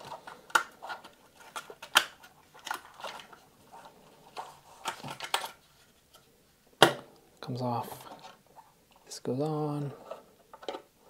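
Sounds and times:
plastic clicks and rattling: 0.0s - 5.6s, 10.0s - 10.9s.

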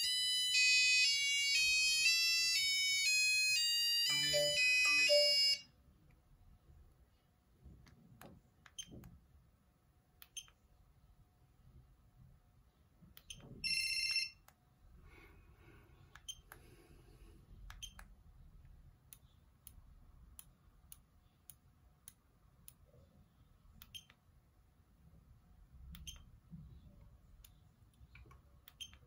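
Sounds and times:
electronic ringtone note: 4.0s - 5.6s.

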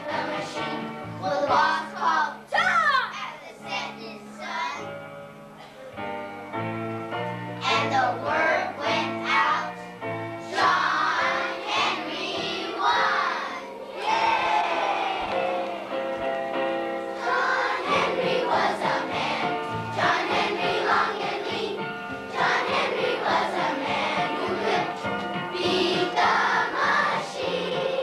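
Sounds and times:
children's choir singing: 0.0s - 2.4s, 7.6s - 9.8s, 10.4s - 28.0s
instrumental accompaniment: 4.0s - 28.0s.

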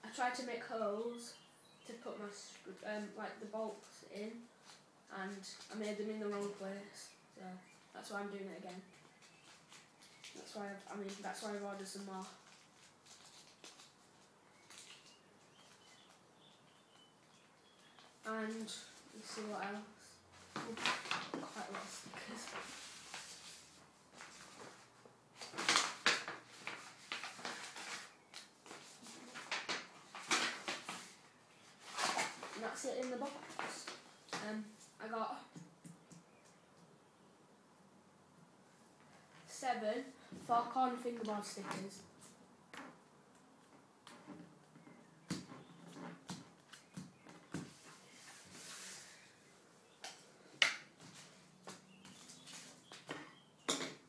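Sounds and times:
paper envelope rustling: 8.9s - 16.2s, 18.5s - 34.1s
soft sliding rustle: 21.4s - 25.0s, 47.7s - 49.4s.

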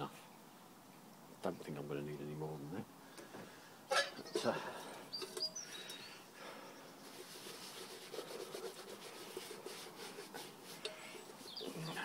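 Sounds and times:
cloth rubbing on metal: 7.0s - 12.0s.

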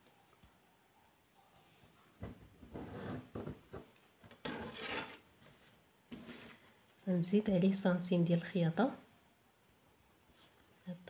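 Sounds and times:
paper and ruler rubbing on wood: 4.4s - 6.6s.

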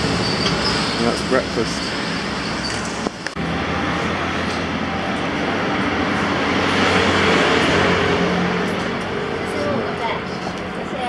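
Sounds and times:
city street traffic: 0.0s - 11.0s.

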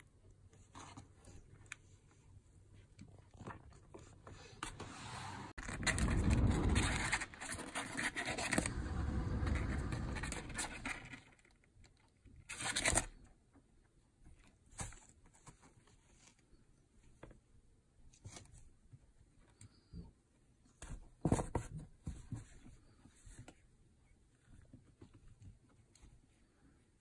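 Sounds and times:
kittens scratching cardboard: 0.4s - 11.5s.

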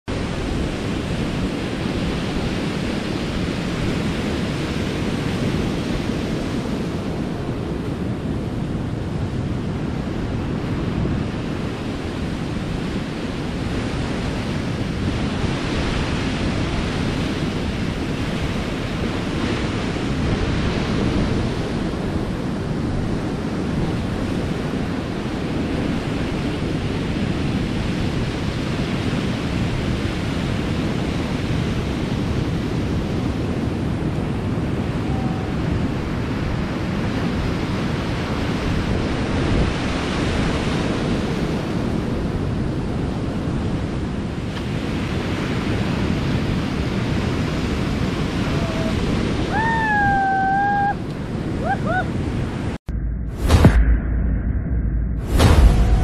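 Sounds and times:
wind buffeting microphone: 0.1s - 56.0s
surf breaking on rocky shore: 55.2s - 56.0s.

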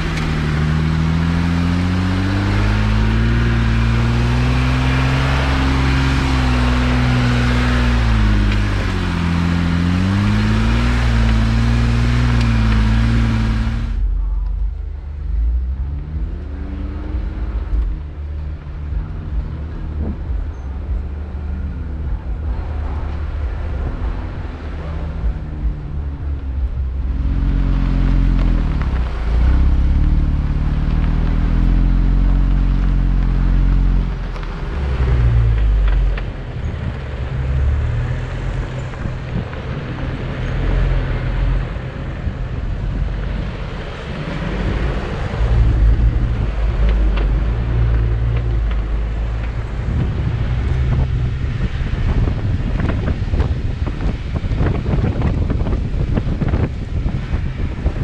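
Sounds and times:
car engine running: 0.0s - 37.5s
road rumble: 0.0s - 58.0s
wind buffeting microphone: 41.4s - 58.0s.

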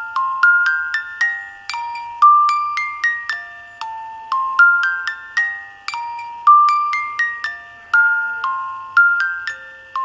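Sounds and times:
bell-like melody: 0.0s - 10.0s.

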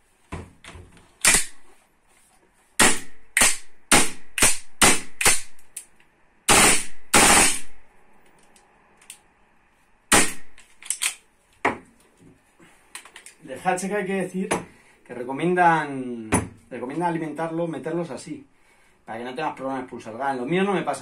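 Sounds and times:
airsoft rifle shots: 1.2s - 1.6s, 2.8s - 5.6s, 6.5s - 7.8s, 10.1s - 10.6s.

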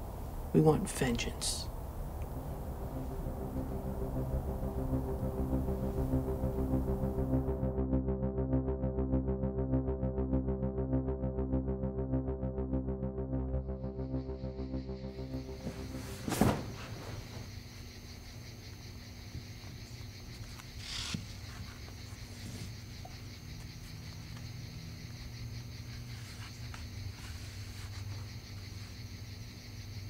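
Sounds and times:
low steady hum: 0.0s - 30.0s
high insect-like drone: 1.6s - 7.8s, 13.6s - 30.0s
sudden thump: 15.6s - 17.5s.

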